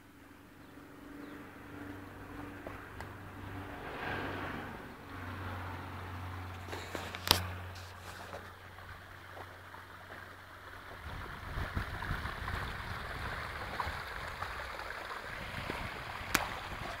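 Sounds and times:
low rumble: 0.6s - 8.0s
water splashing down rocks: 7.1s - 17.0s.

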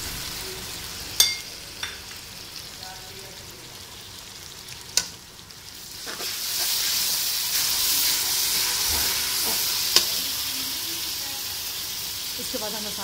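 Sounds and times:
onions sizzling in hot oil: 0.0s - 13.0s
metal spoon clicking on pan: 9.9s - 10.2s.

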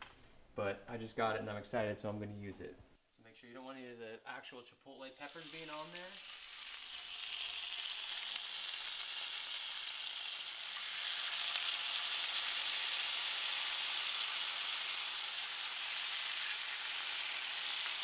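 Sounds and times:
chicken sizzling in grill pan: 5.2s - 18.0s.

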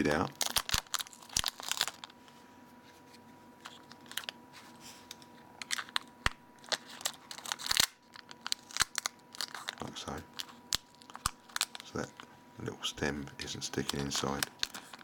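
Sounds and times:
sticky tape crinkling: 0.3s - 2.1s, 5.6s - 12.3s, 13.2s - 15.0s.

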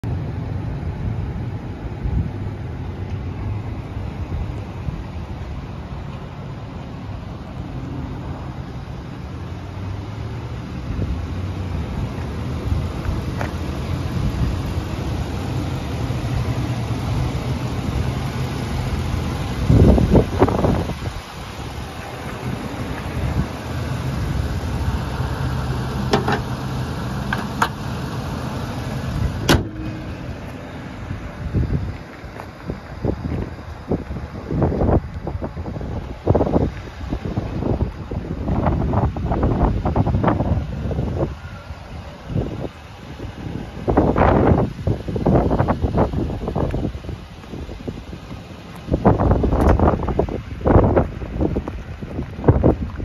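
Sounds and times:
van engine idling: 0.0s - 53.0s
wind on microphone: 19.4s - 25.1s, 31.0s - 53.0s.

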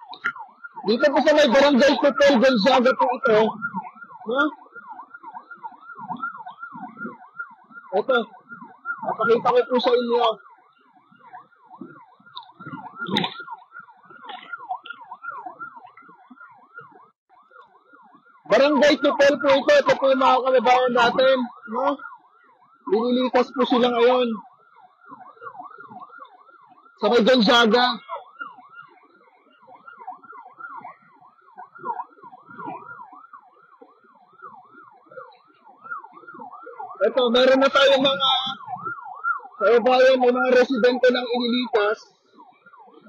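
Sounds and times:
emergency siren yelping: 0.0s - 43.0s
wind buffeting microphone: 3.3s - 9.5s, 10.4s - 16.8s, 38.1s - 39.5s.

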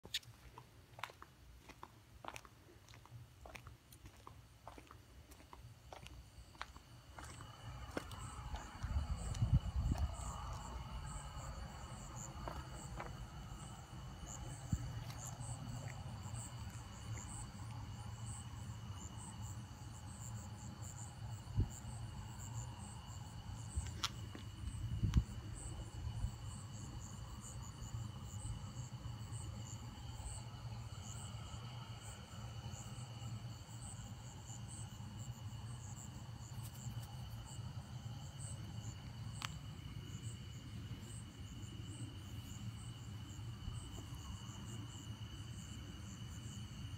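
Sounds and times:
crickets trilling: 0.0s - 46.9s
low background rumble: 0.3s - 46.9s.

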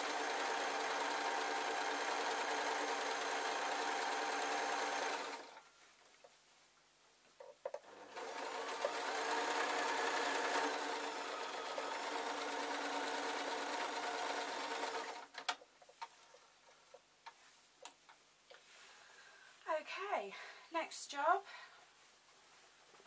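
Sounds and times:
electric sewing machine stitching: 0.0s - 5.6s, 7.8s - 15.5s.

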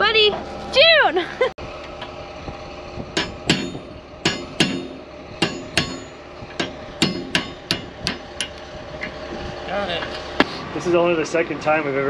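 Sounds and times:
hammer striking steel pin: 3.2s - 8.6s.

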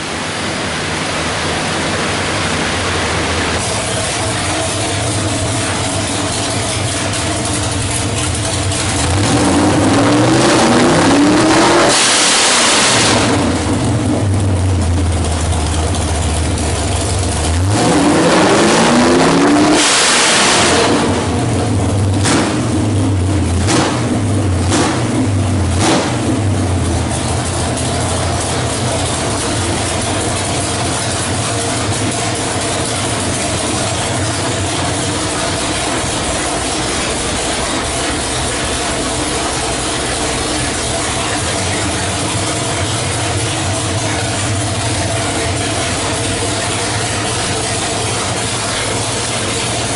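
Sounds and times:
engine idling and revving: 0.0s - 49.9s
engine throttle blips: 0.0s - 49.9s.

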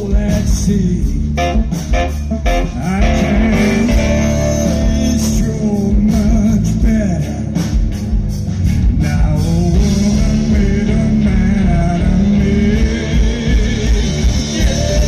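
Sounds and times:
blues-rock band playing: 0.0s - 15.0s
electric guitar bent notes: 1.3s - 5.6s.

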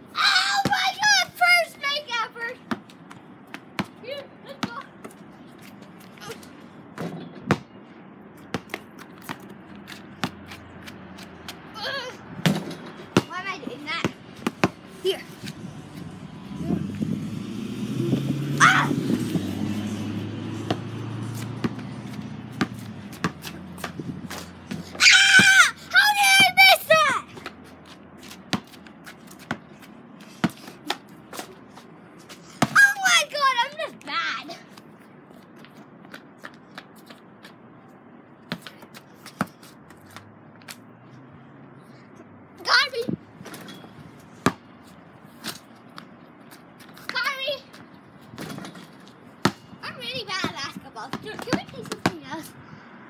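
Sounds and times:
child shouting: 0.1s - 2.6s, 11.7s - 12.2s, 18.6s - 19.0s, 24.9s - 27.4s, 32.6s - 34.7s, 42.6s - 43.2s, 47.1s - 47.7s
basketball bouncing on asphalt: 0.6s - 1.0s, 2.6s - 5.3s, 6.9s - 7.8s, 8.4s - 11.7s, 12.4s - 14.9s, 20.1s - 26.7s, 27.3s - 31.5s, 32.3s - 33.0s, 38.3s - 40.9s, 43.4s - 44.8s, 45.4s - 52.4s.

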